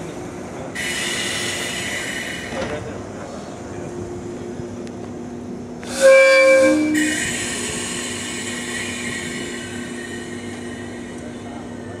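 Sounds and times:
electric train humming: 0.0s - 12.0s
train horn blast: 5.9s - 7.4s.

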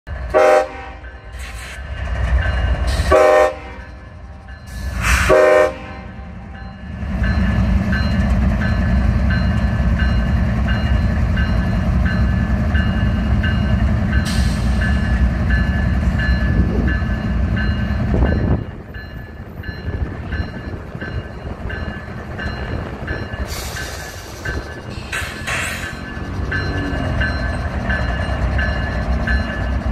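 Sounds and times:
locomotive engine rumbling: 0.1s - 29.9s
locomotive horn blasts: 0.3s - 1.2s, 3.1s - 4.0s, 5.0s - 6.2s.

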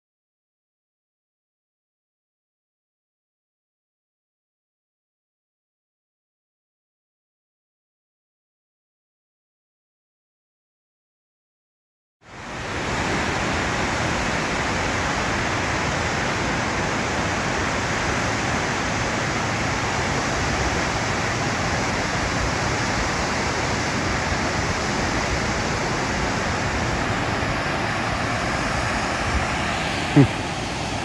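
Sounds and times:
waterfall rushing: 12.3s - 31.0s.

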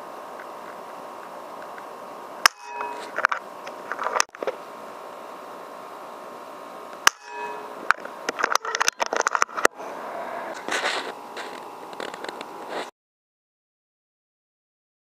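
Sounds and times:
crackly rustling and scraping: 2.9s - 4.6s, 8.0s - 9.7s, 10.5s - 12.9s.

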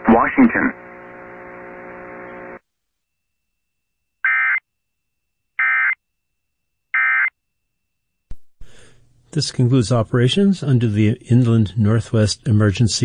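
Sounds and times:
buzzing hum: 0.0s - 4.6s.

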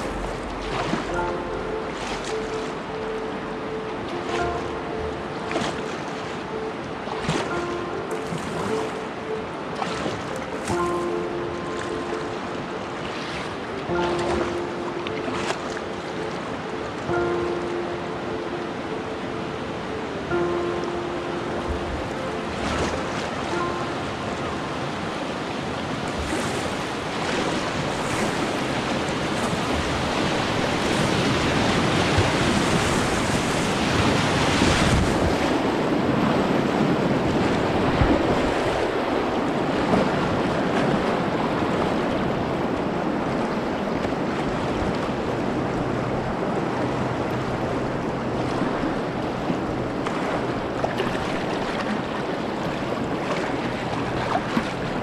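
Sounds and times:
river water rushing: 0.0s - 55.0s
wind on microphone: 21.5s - 55.0s.

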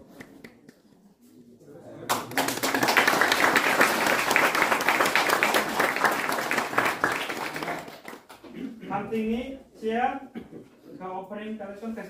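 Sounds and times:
audience clapping: 2.1s - 8.5s.

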